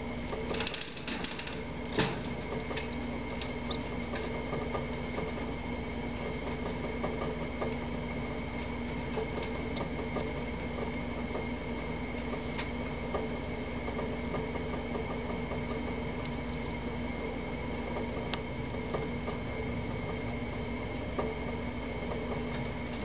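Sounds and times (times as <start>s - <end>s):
steady hum: 0.0s - 12.6s
quail chick peeping: 1.2s - 4.1s, 7.5s - 10.3s.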